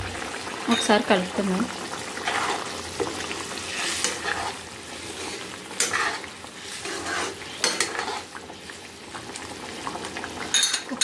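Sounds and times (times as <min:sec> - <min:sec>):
curry bubbling: 0:00.0 - 0:11.0
ladle scraping pan: 0:02.2 - 0:08.4.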